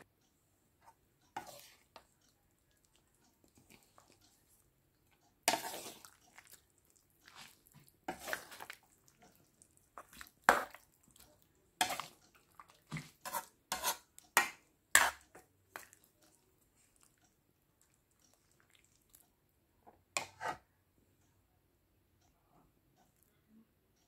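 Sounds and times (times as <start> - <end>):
ladle clinking and scraping a pot: 1.4 - 2.1, 5.4 - 6.5, 7.3 - 8.8, 11.8 - 12.2, 12.8 - 16.0, 20.2 - 20.6.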